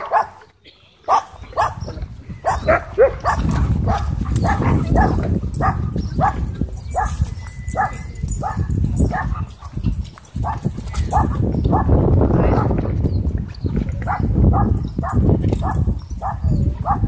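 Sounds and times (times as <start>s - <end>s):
dogs barking and yelping: 0.0s - 12.8s, 13.9s - 17.0s.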